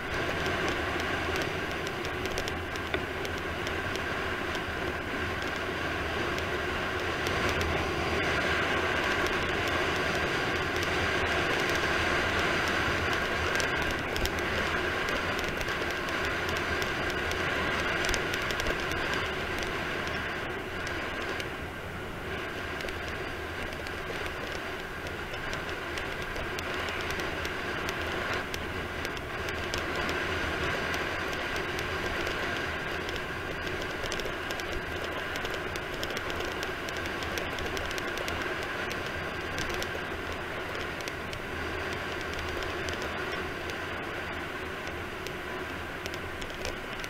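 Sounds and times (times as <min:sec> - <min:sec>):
wheels rolling on asphalt: 0:00.0 - 0:47.0
wind rushing over camera: 0:00.0 - 0:47.0.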